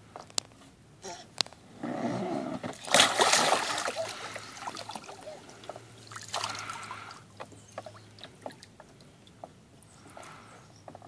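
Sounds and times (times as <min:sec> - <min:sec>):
water sloshing in pool: 0:02.6 - 0:09.6.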